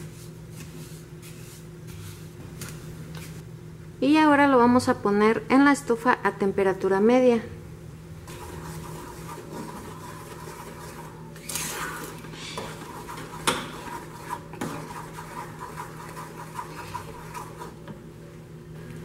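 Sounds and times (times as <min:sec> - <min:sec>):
steady low hum: 0:00.0 - 0:19.0
wooden spoon scraping a saucepan: 0:08.3 - 0:11.2, 0:12.4 - 0:17.8.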